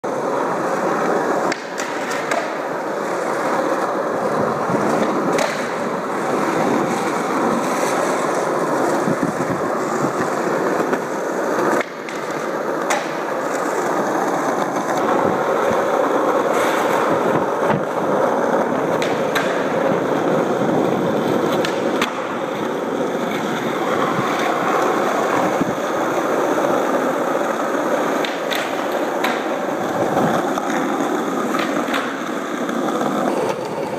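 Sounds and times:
skateboard clacking: 0.0 - 33.9
skateboard wheels rolling on asphalt: 0.0 - 33.9.

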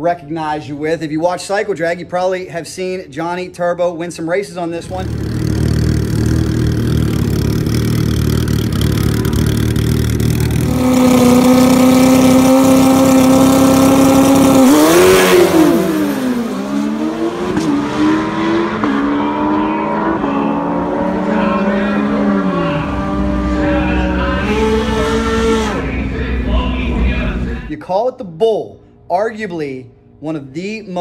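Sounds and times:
racing motorcycles engines: 4.8 - 27.7.

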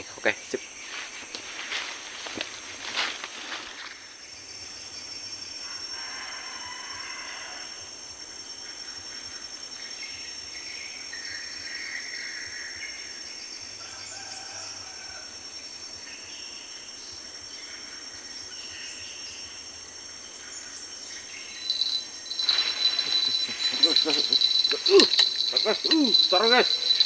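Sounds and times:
insects droning: 0.0 - 27.0
bird calls: 21.4 - 27.0
rattling with high ringing: 21.6 - 27.0.

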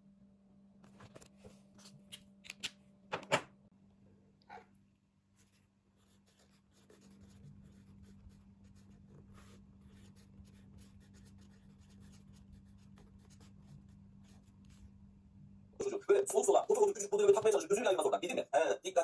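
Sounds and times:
pen scratching on paper: 5.4 - 14.9.

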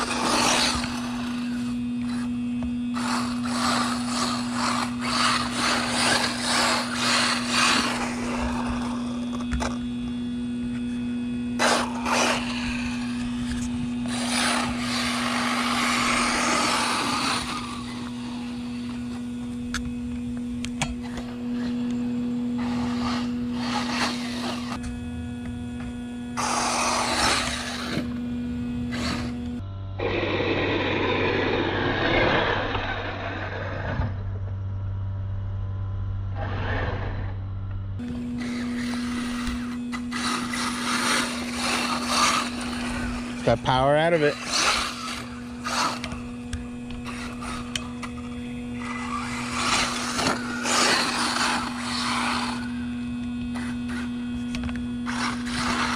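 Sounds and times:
electric motor whine: 0.0 - 55.9
steady hum: 0.0 - 55.9
tyres spraying dirt: 2.9 - 9.8, 11.6 - 19.3, 38.1 - 54.2, 55.0 - 55.9.

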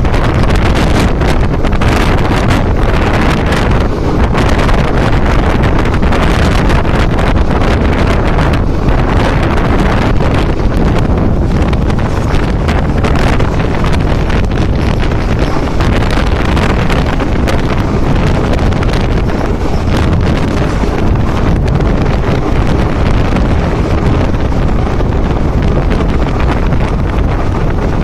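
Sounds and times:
train rumbling on track: 0.0 - 28.0
wind buffeting microphone: 0.0 - 28.0.

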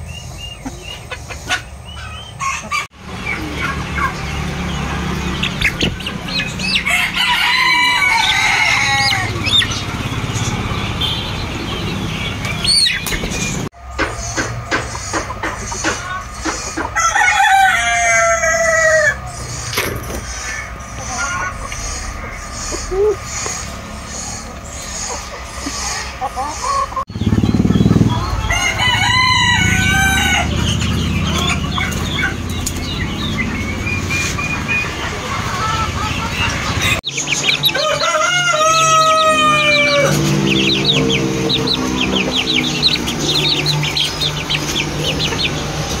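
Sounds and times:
chick peeps: 0.0 - 46.0
hen clucking: 0.0 - 46.0
rooster crowing: 6.6 - 9.6, 16.9 - 19.4, 28.1 - 31.6, 37.6 - 43.5.

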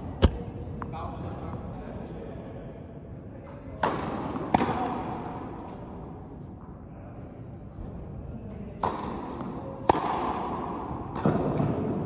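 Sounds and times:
tennis ball struck by rackets: 0.0 - 0.5, 9.8 - 10.4.

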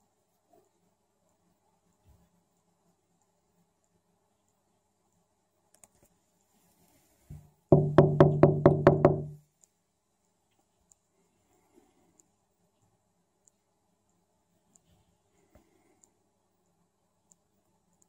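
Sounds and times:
knuckles rapping on window: 7.7 - 9.4.

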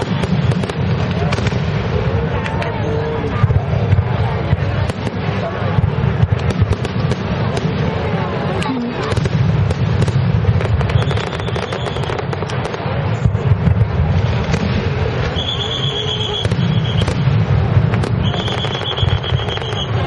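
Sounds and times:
fireworks crackling: 0.0 - 20.0
low rumbling booms: 3.1 - 11.2, 12.4 - 15.6, 16.4 - 18.5
high whistle: 10.9 - 12.1, 15.3 - 17.1, 18.2 - 20.0.

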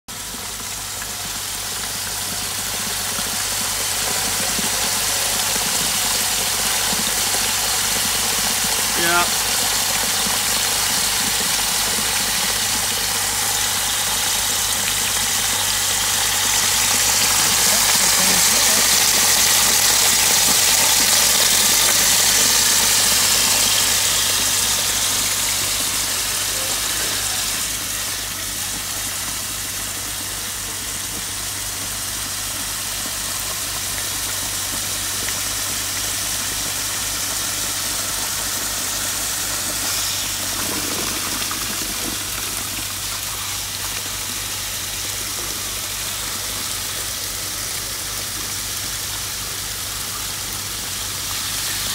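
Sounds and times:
grout rushing from hose: 35.8 - 51.9.

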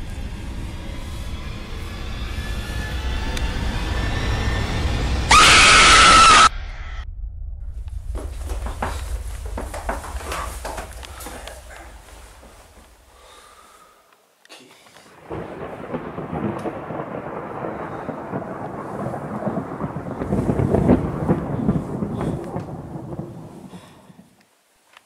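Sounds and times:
thunder rumbling: 0.0 - 13.2, 15.2 - 24.3.

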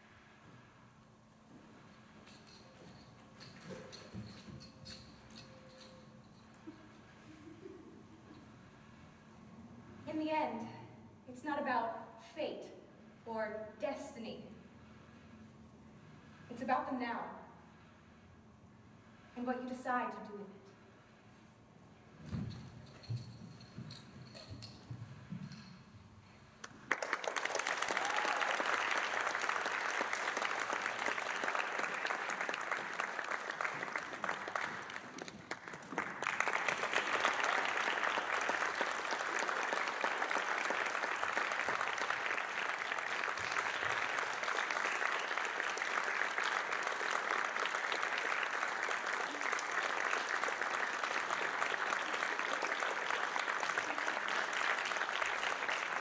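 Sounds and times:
audience applauding: 26.6 - 56.0.

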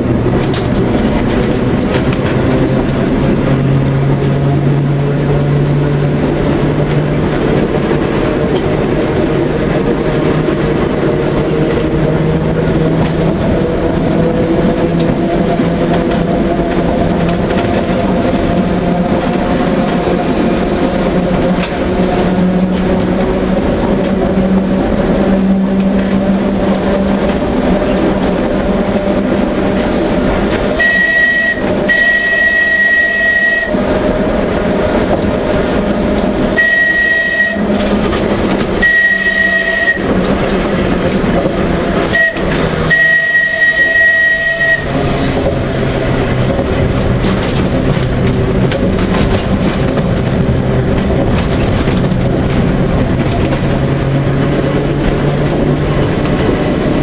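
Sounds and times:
tram motor hum and rattle: 0.0 - 57.0.

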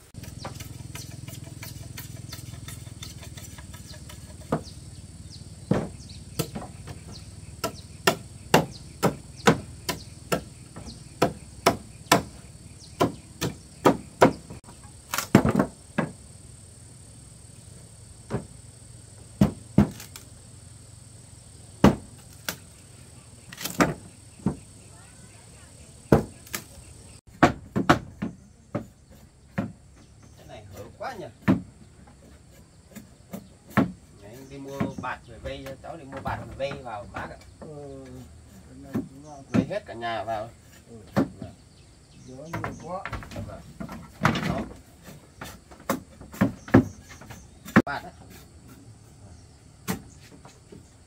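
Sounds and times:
hand tool knocking wood: 0.2 - 4.8, 5.7 - 12.4, 13.0 - 16.2, 19.4 - 20.1, 27.3 - 30.8, 31.4 - 37.7, 38.9 - 39.9, 42.4 - 48.8.

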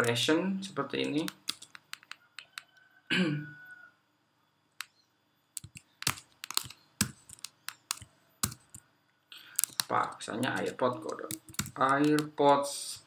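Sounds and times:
keyboard typing: 1.0 - 2.7, 5.6 - 8.8, 9.5 - 13.0.

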